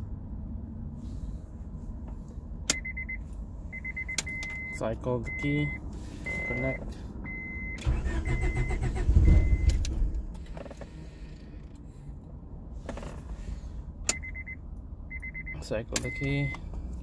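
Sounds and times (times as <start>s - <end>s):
car engine cranking: 7.4s - 11.8s.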